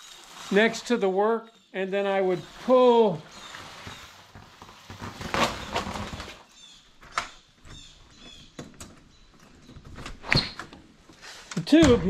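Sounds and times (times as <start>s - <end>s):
plastic duct hose crinkling: 0.0s - 8.5s.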